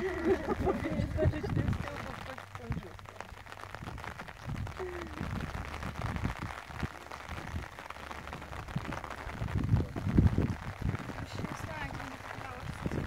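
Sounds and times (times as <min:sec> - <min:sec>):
faint voices: 0:00.0 - 0:13.0
rain pattering: 0:00.0 - 0:13.0.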